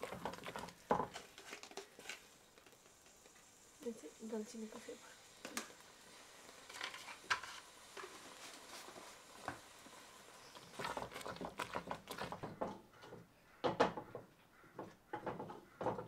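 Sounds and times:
wooden spatula scraping metal pot: 0.0 - 2.8, 6.7 - 9.6, 10.5 - 13.2.

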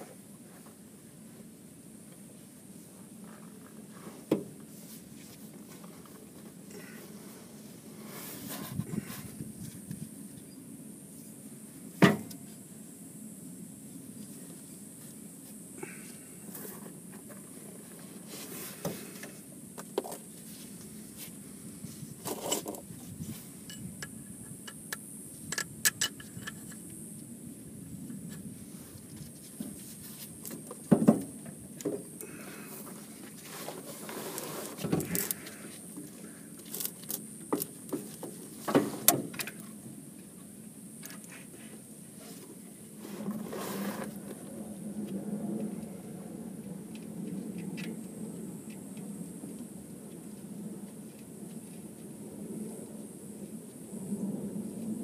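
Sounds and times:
metallic clinks and scrapes of tools: 22.2 - 22.8.

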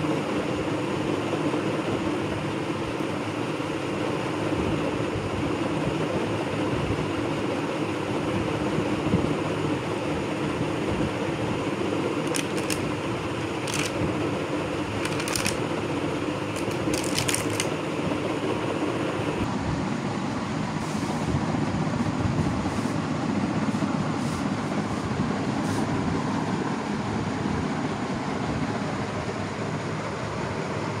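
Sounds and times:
plastic tray crackles: 12.3 - 12.8, 13.6 - 14.0, 15.0 - 15.6, 16.6 - 17.7.

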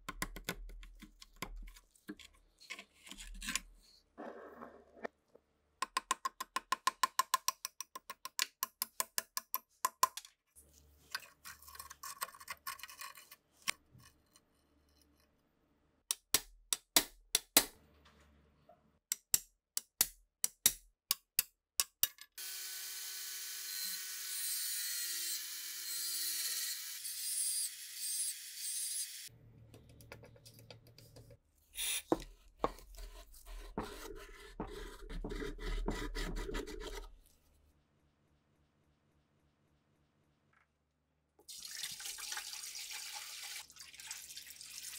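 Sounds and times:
rubbing and scraping on metal: 31.8 - 37.3.

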